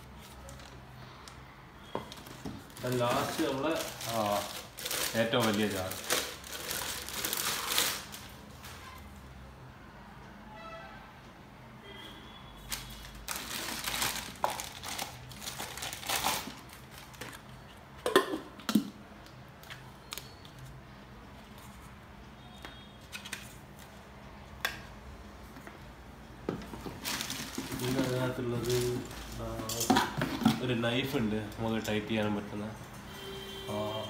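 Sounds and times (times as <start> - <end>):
packaging rustling and crinkling: 2.0 - 8.8, 12.7 - 17.7, 26.7 - 31.1.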